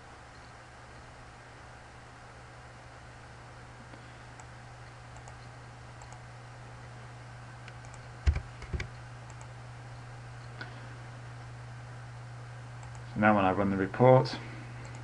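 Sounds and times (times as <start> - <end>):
low electrical hum: 0.0 - 15.0
mouse clicks: 5.2 - 6.2
keyboard keystrokes: 7.7 - 9.5.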